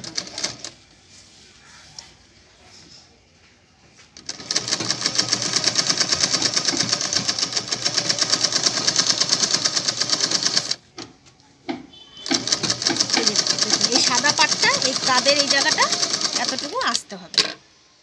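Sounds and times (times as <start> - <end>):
sewing machine stitching: 0.0 - 0.8, 4.2 - 10.8, 12.2 - 17.6.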